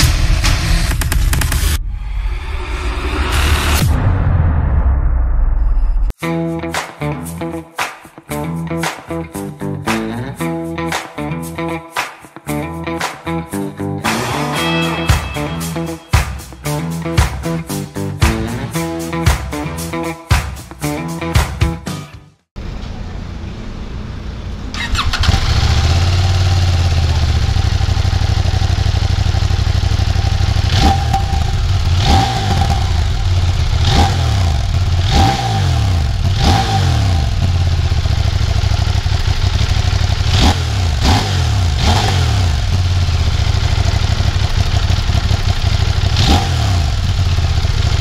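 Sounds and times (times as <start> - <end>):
motorcycle engine idling and revving: 22.6 - 48.0.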